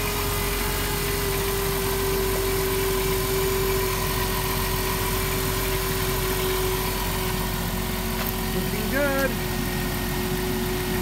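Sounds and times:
car engine idling: 0.0s - 11.0s
steady engine whine: 0.0s - 11.0s.

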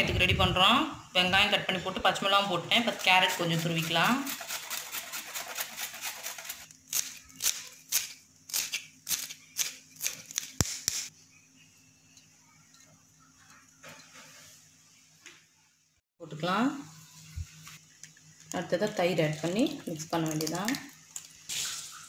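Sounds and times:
carrot grated on steel grater: 2.9s - 6.6s.

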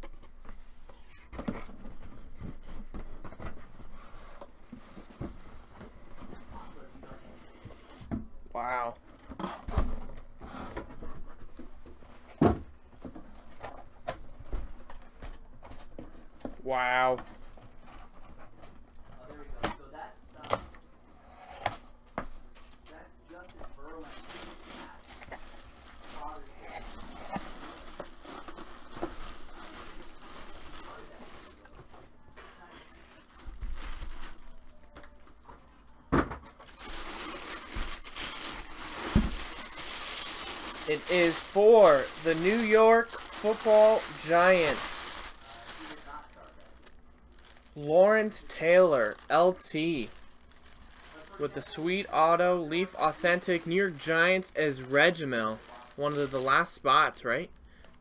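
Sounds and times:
plastic bag crinkling: 22.7s - 35.3s, 36.6s - 58.0s.

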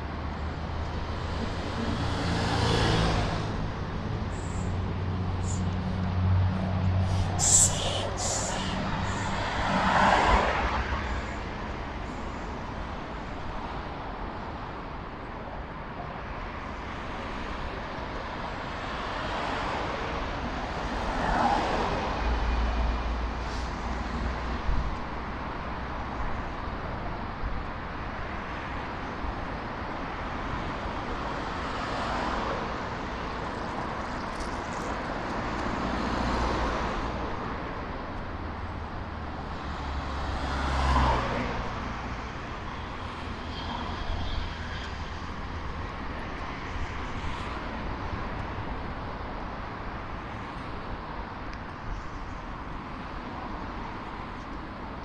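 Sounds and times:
heavy low engine rumble: 0.0s - 9.9s
city road traffic: 0.0s - 55.0s.

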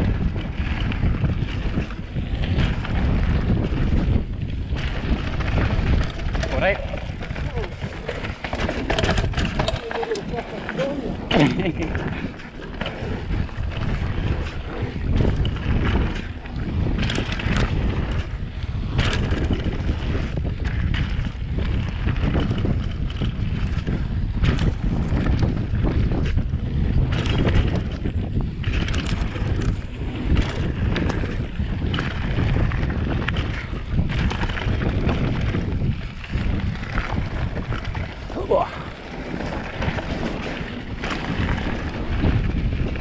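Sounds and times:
bike knocks and rattles: 0.0s - 43.0s
wind buffeting microphone: 0.0s - 43.0s
tyres rolling over gravel: 4.8s - 20.3s, 28.4s - 43.0s.

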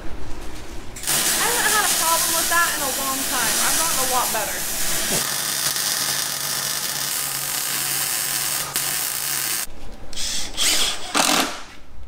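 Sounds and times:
arc welding hiss: 1.0s - 5.2s
cordless drill driving screws: 5.2s - 11.6s.

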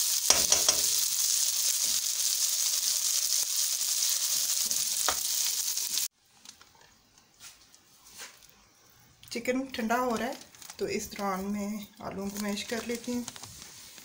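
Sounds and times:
chicken sizzling in oil: 0.0s - 6.1s.

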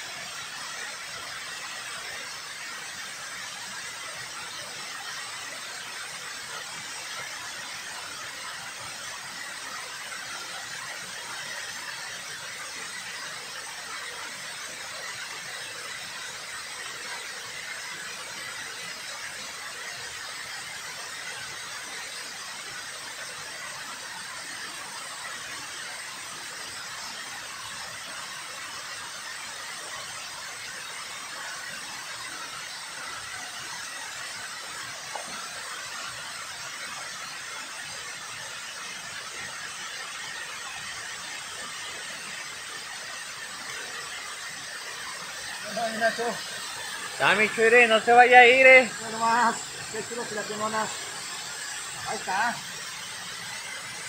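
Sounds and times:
water rushing over dam spillway: 0.0s - 54.0s.

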